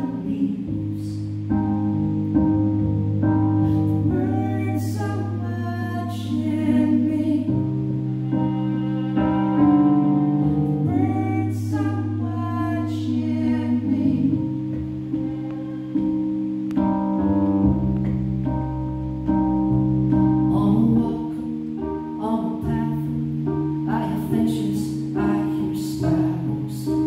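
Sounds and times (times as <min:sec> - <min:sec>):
electric keyboard chords: 0:00.0 - 0:27.0
bowed violin melody: 0:03.6 - 0:19.0.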